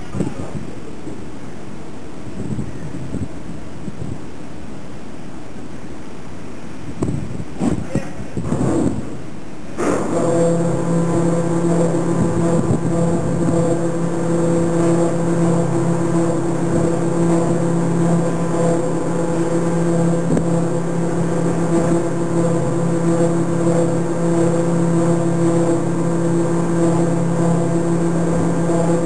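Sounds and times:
high steady machinery whine: 0:08.4 - 0:29.0
ship machinery low hum: 0:08.4 - 0:29.0.

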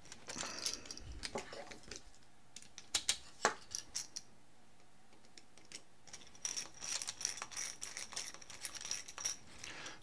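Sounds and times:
metal fasteners clicking: 0:05.3 - 0:09.7.

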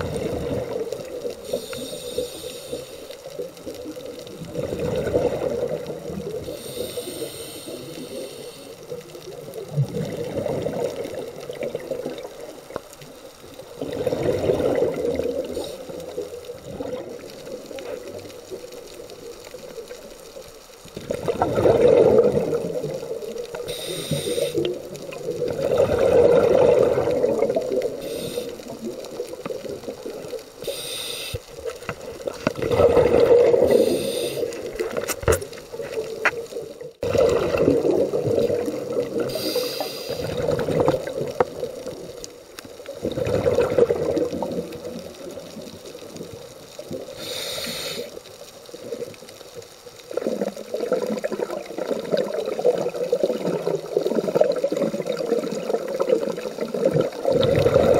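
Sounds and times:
bubbling exhaled air: 0:00.0 - 0:12.6, 0:13.7 - 0:18.6, 0:20.9 - 0:35.3, 0:37.0 - 0:42.2, 0:42.9 - 0:48.2, 0:50.1 - 0:57.9
regulator inhale hiss: 0:01.4 - 0:03.4, 0:06.4 - 0:09.0, 0:15.4 - 0:16.2, 0:23.5 - 0:24.8, 0:27.9 - 0:28.9, 0:30.6 - 0:31.5, 0:33.6 - 0:34.7, 0:39.2 - 0:40.4, 0:47.0 - 0:48.4.

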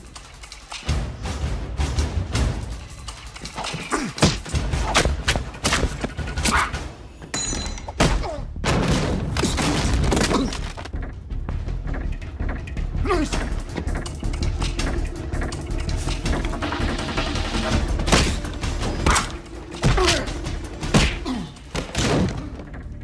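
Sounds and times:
tense film score: 0:00.0 - 0:23.0
fight blows and body impacts: 0:03.7 - 0:06.8, 0:18.0 - 0:22.7.

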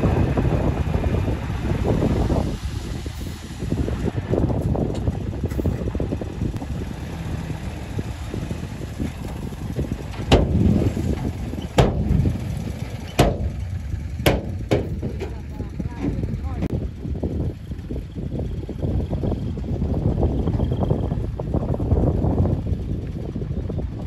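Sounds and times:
excavator diesel engine rumbling: 0:00.0 - 0:24.0
sharp knocks: 0:10.2 - 0:15.4.

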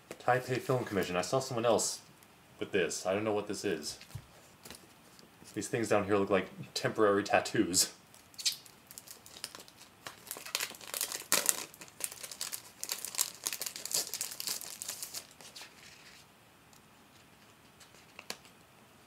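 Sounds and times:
paper rustling and crinkling: 0:08.9 - 0:16.3.

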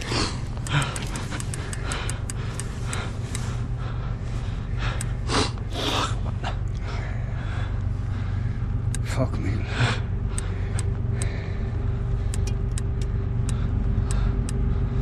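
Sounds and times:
sharp clicks: 0:00.0 - 0:03.5, 0:04.9 - 0:05.2, 0:08.6 - 0:09.1, 0:10.3 - 0:11.4, 0:12.2 - 0:14.7
steady low hum: 0:00.0 - 0:15.0
person snorting and gasping: 0:05.2 - 0:06.6.

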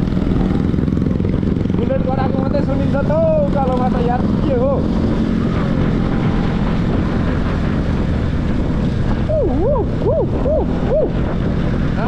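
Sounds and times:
motorcycle engine hum: 0:00.0 - 0:12.0
wind buffeting microphone: 0:00.0 - 0:12.0
warbling tone: 0:09.2 - 0:11.5.

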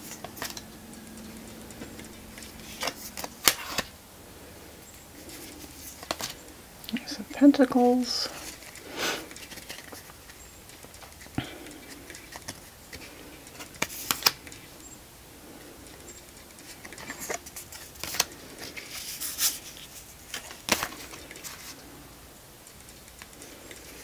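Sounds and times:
cards flicking and snapping: 0:00.0 - 0:04.0, 0:05.2 - 0:06.4, 0:08.4 - 0:14.7, 0:16.2 - 0:21.9
cards sliding and rustling: 0:00.0 - 0:06.6, 0:08.2 - 0:14.9, 0:15.5 - 0:24.0.

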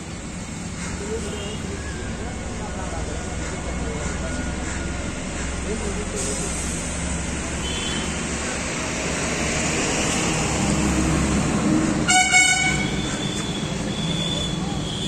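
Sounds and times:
engine and traffic noise: 0:00.0 - 0:15.0
vehicle horn toot: 0:07.6 - 0:08.1, 0:12.1 - 0:15.0.

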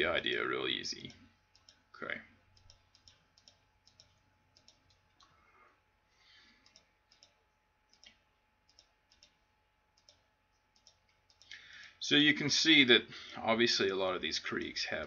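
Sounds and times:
faint computer mouse clicks: 0:06.6 - 0:09.4, 0:10.8 - 0:11.6.

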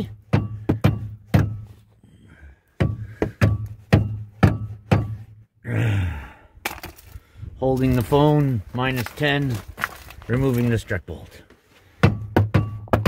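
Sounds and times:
rubber mallet striking bolts: 0:00.3 - 0:01.7, 0:02.8 - 0:05.3, 0:12.0 - 0:13.0.

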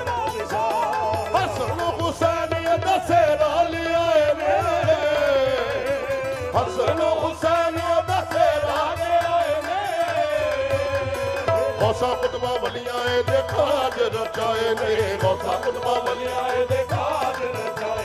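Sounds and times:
harmoniums: 0:00.0 - 0:18.0
lead voice singing ornamented line: 0:00.0 - 0:18.0.

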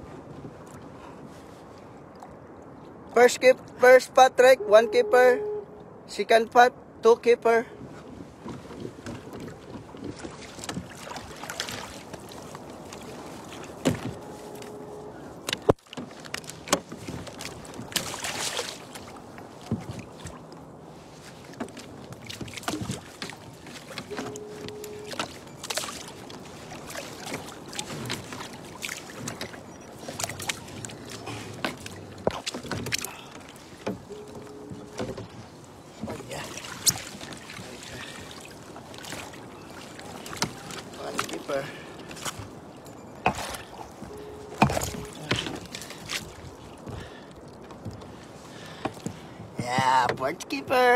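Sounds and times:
water and wind: 0:00.0 - 0:50.9
short steady tone: 0:04.6 - 0:05.8, 0:14.1 - 0:15.3, 0:24.1 - 0:25.6, 0:34.1 - 0:35.2, 0:43.9 - 0:45.4.

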